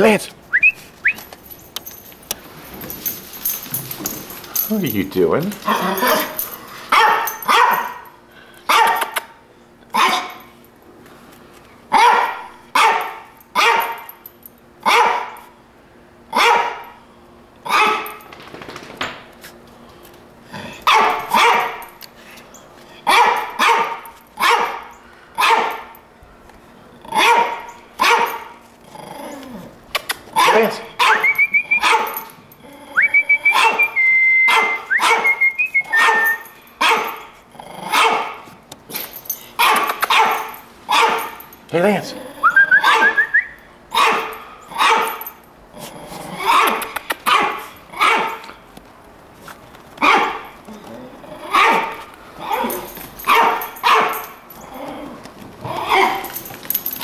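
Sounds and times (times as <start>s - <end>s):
dog barking: 5.7s - 8.0s, 8.7s - 9.2s, 9.9s - 10.4s, 11.9s - 14.1s, 14.8s - 15.4s, 16.3s - 16.9s, 17.7s - 18.1s, 20.8s - 21.9s, 23.1s - 25.9s, 27.1s - 28.5s, 30.4s - 32.2s, 33.5s - 35.4s, 36.0s - 37.2s, 37.9s - 38.4s, 39.6s - 41.4s, 42.8s - 43.2s, 43.9s - 45.2s, 46.4s - 48.4s, 50.0s - 50.5s, 51.5s - 52.7s, 53.3s - 54.3s, 55.8s - 56.2s.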